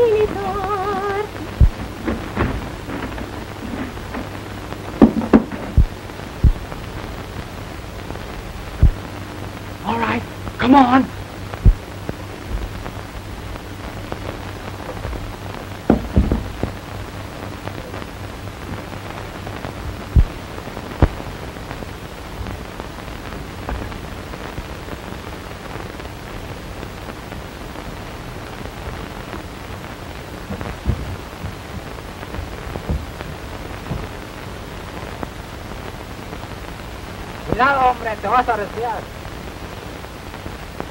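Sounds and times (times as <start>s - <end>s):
low hum: 0.0s - 24.8s
film soundtrack hiss: 0.0s - 40.9s
sharp knocks: 5.0s - 6.6s, 15.9s - 16.8s.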